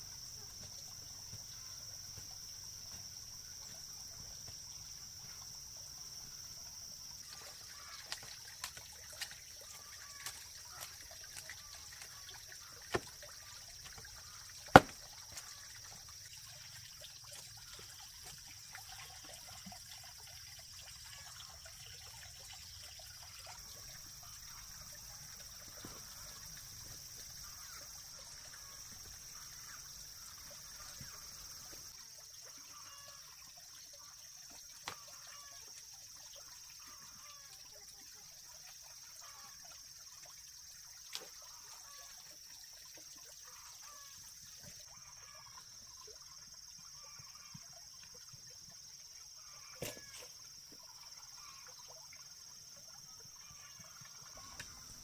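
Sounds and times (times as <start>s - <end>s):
insect drone: 0.0s - 55.0s
blade knocking on ground: 14.8s - 15.0s.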